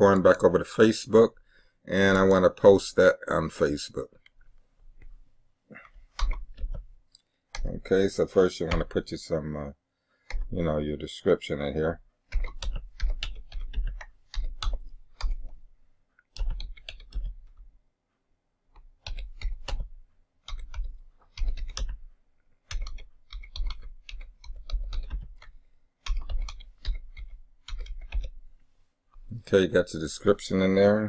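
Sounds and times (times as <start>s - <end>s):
typing on keyboard: 6.1s - 6.8s, 12.3s - 15.7s, 16.3s - 17.6s, 18.8s - 28.4s.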